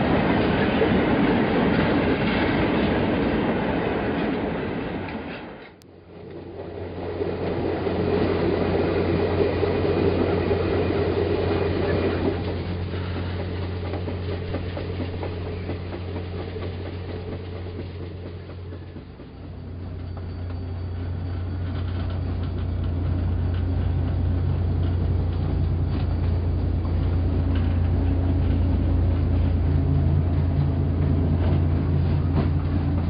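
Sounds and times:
wheels rattling on rails: 0.0 - 33.0
model train humming: 5.9 - 33.0.

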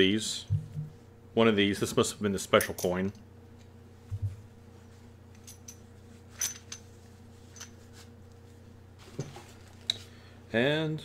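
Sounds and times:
steady low hum: 0.0 - 11.0
metal coins clicking and clinking: 5.4 - 6.8.

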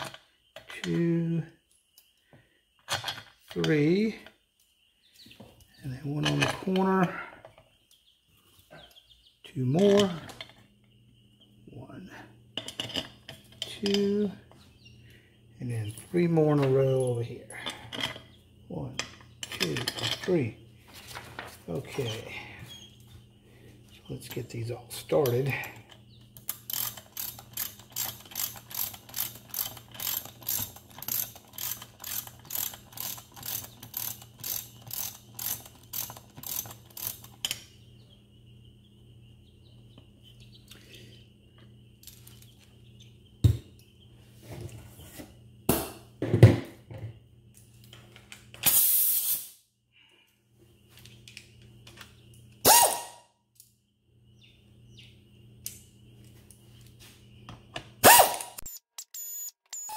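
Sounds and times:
tools and bolts clattering: 2.8 - 3.8, 6.1 - 7.6, 12.6 - 14.2, 16.0 - 20.3, 25.2 - 37.7, 42.0 - 42.6
ratchet wrench clicking: 26.4 - 37.6.

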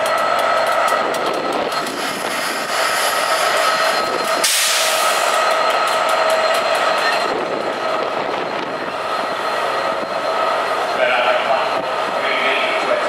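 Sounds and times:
steady train whine: 0.0 - 13.0
train wheels clicking over rail joints: 0.0 - 13.0.

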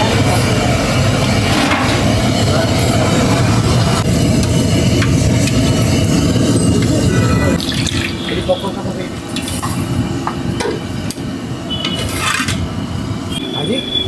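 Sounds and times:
loud low rumble: 0.0 - 7.7
food sizzling in hot oil: 0.1 - 10.3.

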